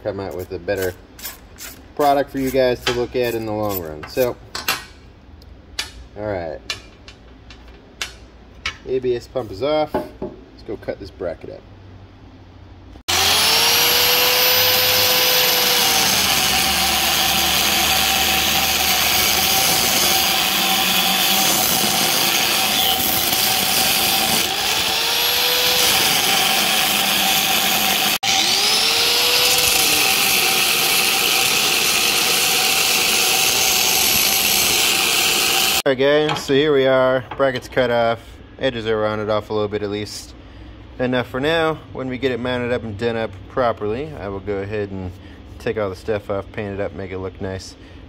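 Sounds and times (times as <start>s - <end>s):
angle grinder cutting steel: 13.1s - 35.8s.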